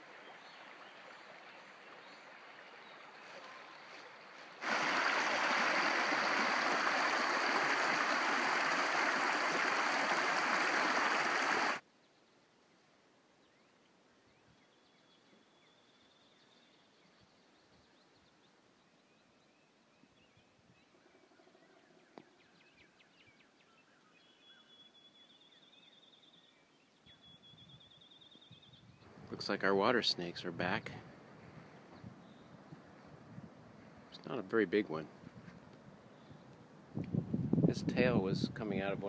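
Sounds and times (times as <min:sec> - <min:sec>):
creek water rushing: 0:00.0 - 0:11.8.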